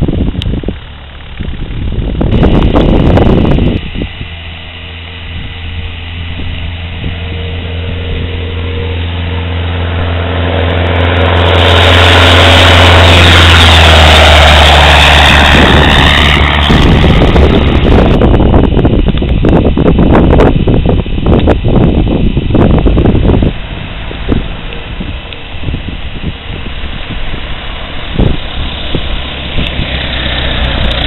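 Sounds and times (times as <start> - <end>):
airplane engine and propeller drone: 0.0 - 31.0
wind buffeting microphone: 0.0 - 31.0.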